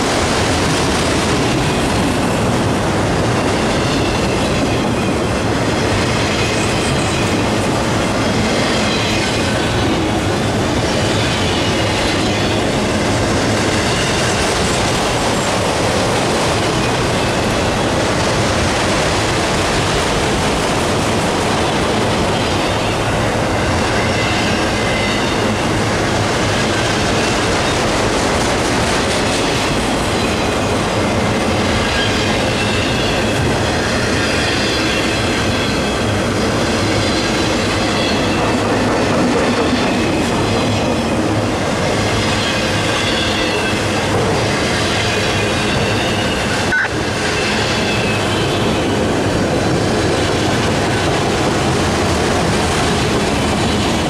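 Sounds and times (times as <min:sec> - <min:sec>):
train wheels rolling on rail: 0:00.0 - 0:54.0
high wheel squeal: 0:22.3 - 0:25.7, 0:31.6 - 0:36.2, 0:36.8 - 0:38.8, 0:42.0 - 0:44.1, 0:44.7 - 0:49.1.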